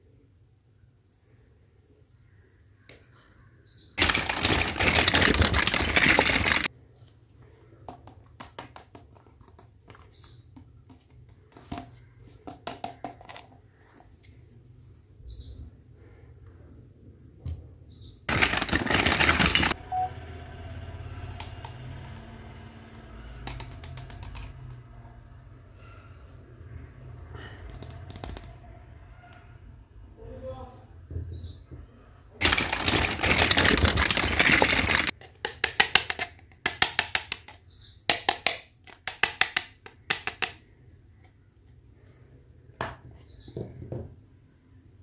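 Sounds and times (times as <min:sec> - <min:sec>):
loud rustling noise: 0:04.0 - 0:06.7, 0:18.3 - 0:19.8, 0:32.4 - 0:35.2
plastic toy pieces clicking: 0:04.0 - 0:06.7, 0:18.3 - 0:19.8, 0:23.4 - 0:24.8, 0:27.6 - 0:28.6, 0:32.4 - 0:40.6.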